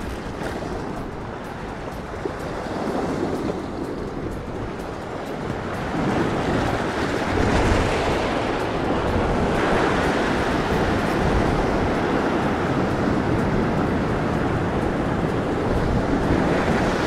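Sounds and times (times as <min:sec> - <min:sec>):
waves breaking on rocks: 0:00.0 - 0:17.0
wind buffeting microphone: 0:00.0 - 0:17.0.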